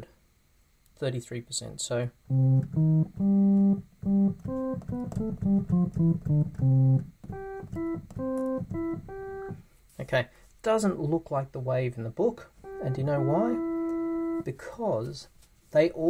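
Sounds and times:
synthesizer organ-like melody: 2.3s - 9.6s, 12.6s - 14.5s.

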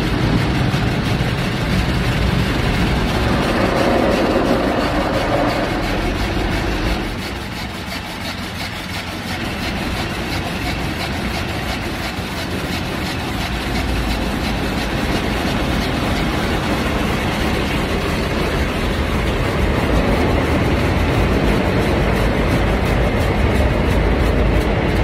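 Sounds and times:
car wash machinery noise: 0.0s - 25.0s.

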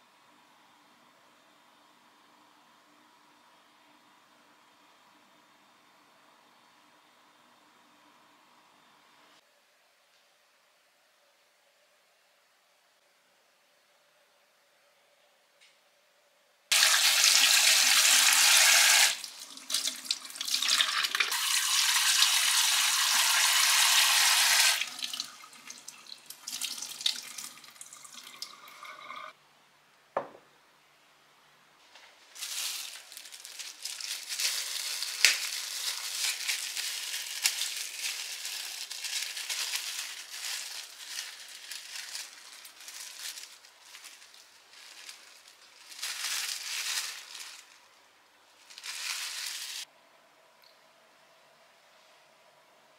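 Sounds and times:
rustling and handling: 31.8s - 49.9s.

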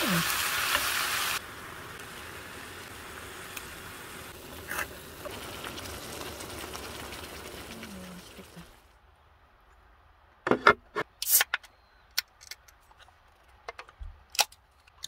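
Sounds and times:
vegetables sizzling in a skillet: 0.0s - 8.8s.

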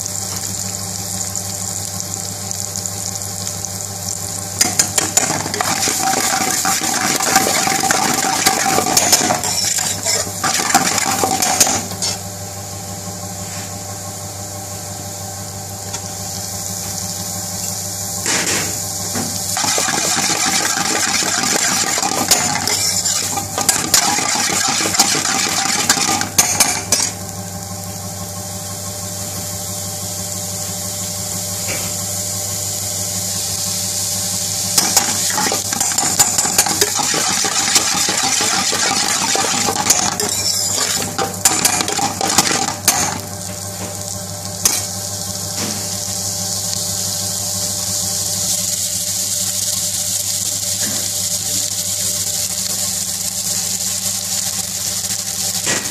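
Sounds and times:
meat sizzling in a skillet: 0.0s - 55.9s
metal spoon scraping a pan: 4.7s - 12.2s, 19.6s - 27.1s, 34.8s - 43.2s.

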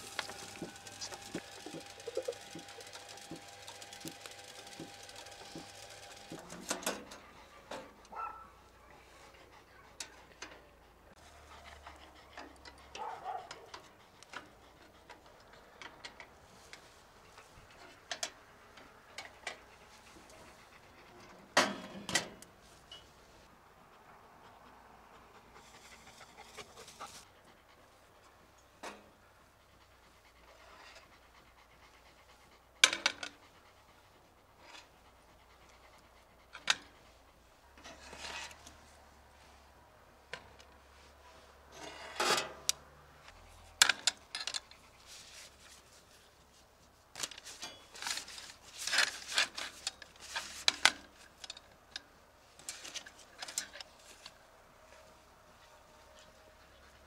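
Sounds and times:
metal skewers clinking and scraping: 37.8s - 38.7s, 47.2s - 51.7s.

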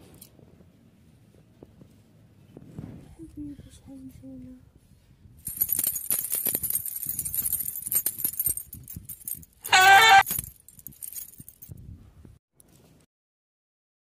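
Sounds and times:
crackly rustling with clicks: 5.4s - 11.7s
kitten meowing: 9.7s - 10.2s.

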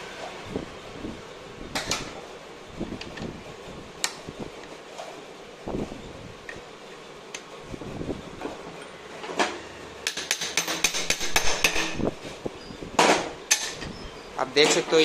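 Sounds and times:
metal-on-metal knocks: 9.4s - 12.0s.

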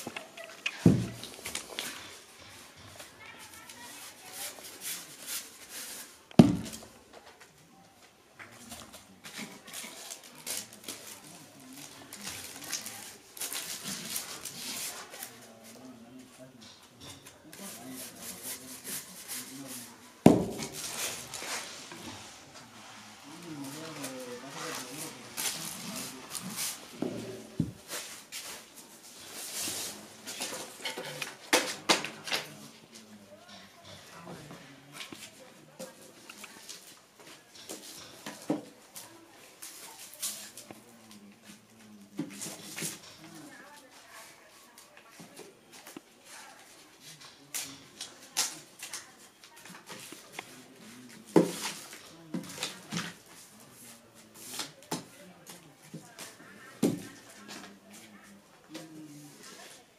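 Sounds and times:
paper rustling and crinkling: 8.5s - 15.9s, 17.6s - 32.8s.

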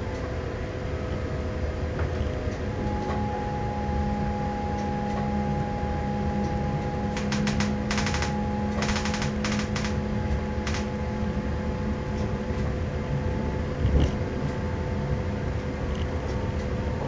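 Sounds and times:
train hum and rumble: 0.0s - 17.0s
thin steady tones: 2.8s - 11.0s
fast clattering clicks: 7.2s - 10.0s, 10.6s - 10.9s.

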